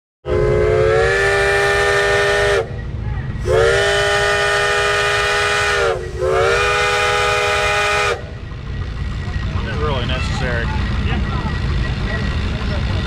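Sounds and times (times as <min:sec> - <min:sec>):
steam whistle blasts: 0:00.2 - 0:02.8, 0:03.4 - 0:08.4
steady low rumble: 0:00.3 - 0:13.0.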